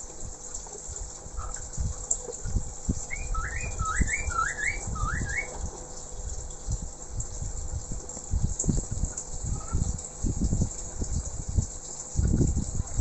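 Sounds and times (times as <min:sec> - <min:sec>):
bird singing whistled notes: 0:03.1 - 0:05.5.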